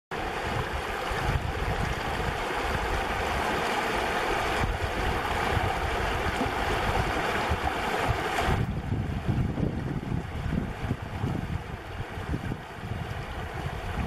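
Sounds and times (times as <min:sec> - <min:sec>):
river rushing over stones: 0:00.2 - 0:14.0
wind buffeting microphone: 0:00.2 - 0:14.0.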